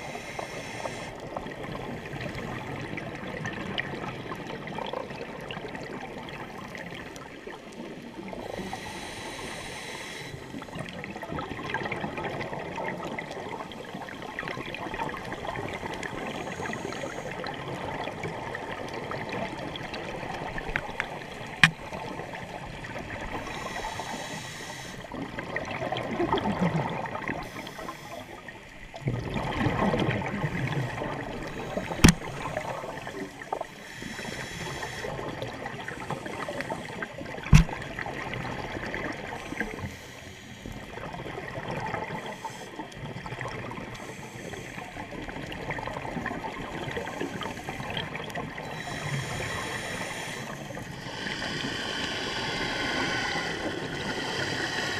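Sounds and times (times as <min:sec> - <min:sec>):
crackling hiss: 0:00.0 - 0:02.4, 0:06.6 - 0:11.0, 0:15.2 - 0:25.4, 0:27.2 - 0:29.0, 0:30.4 - 0:45.5, 0:46.9 - 0:54.9
regulator bubbles gurgling underwater: 0:00.0 - 0:54.9.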